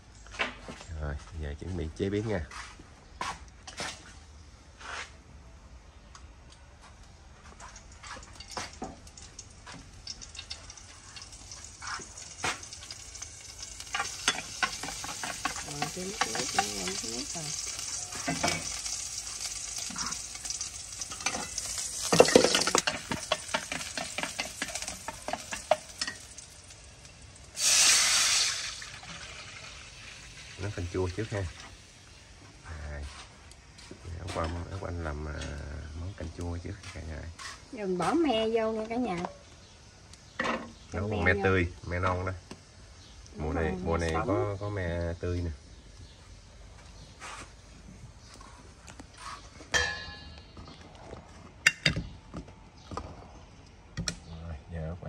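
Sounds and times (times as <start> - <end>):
utensils clicking and clattering: 21.0 - 26.2
hissing scraping noise: 36.8 - 37.8, 47.0 - 47.7.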